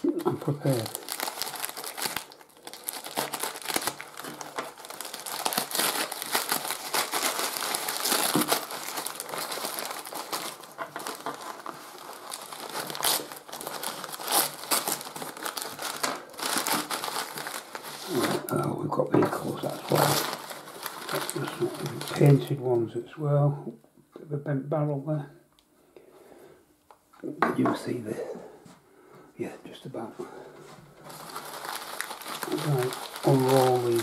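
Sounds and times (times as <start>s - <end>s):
paper crinkling and rustling: 0.0s - 22.6s, 31.0s - 34.0s.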